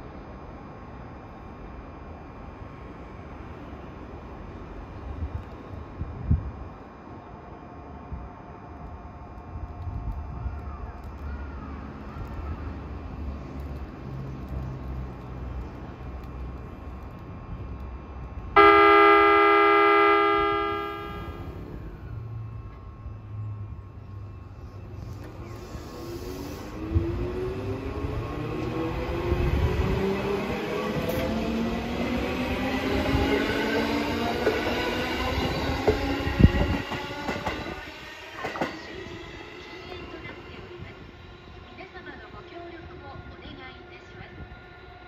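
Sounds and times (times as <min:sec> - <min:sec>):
electric train humming: 0:00.0 - 0:45.0
train horn blast: 0:18.6 - 0:21.6.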